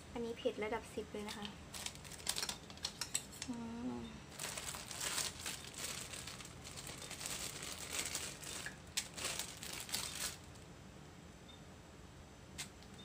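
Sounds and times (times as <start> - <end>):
plastic bag crinkling: 1.4 - 3.1, 4.3 - 10.6.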